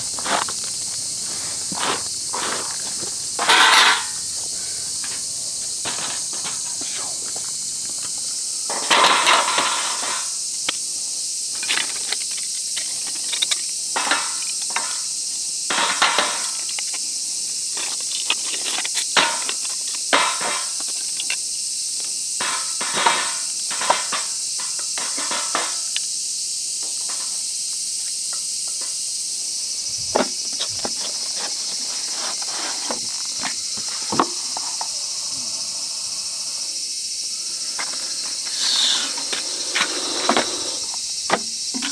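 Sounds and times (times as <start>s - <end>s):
high insect chorus: 0.0s - 41.9s
wooden sticks knocking and clattering: 1.6s - 4.3s, 5.8s - 10.8s, 11.5s - 15.1s, 15.7s - 17.0s, 17.7s - 21.4s, 22.4s - 26.0s, 30.1s - 34.9s.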